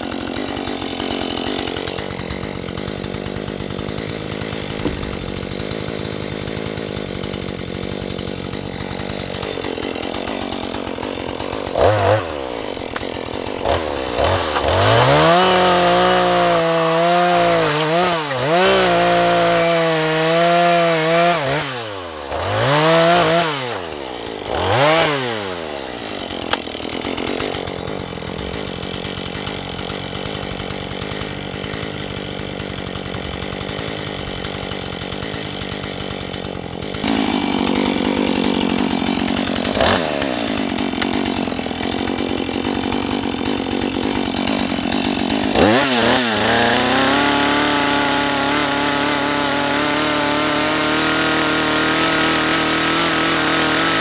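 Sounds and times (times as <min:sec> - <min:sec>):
chainsaw cutting through log: 0:00.0 - 0:54.0
chainsaw idling and revving: 0:00.0 - 0:54.0.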